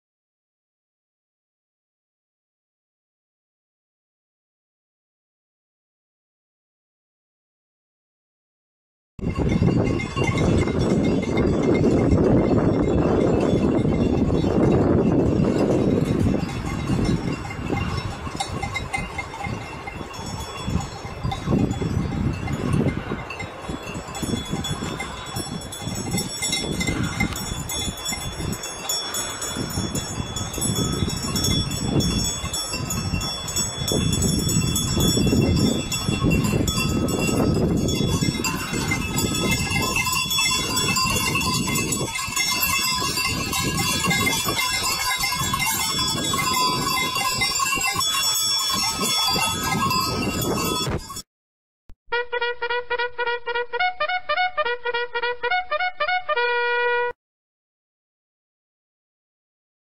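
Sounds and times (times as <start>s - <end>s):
goat bells jangling: 9.2s - 51.2s.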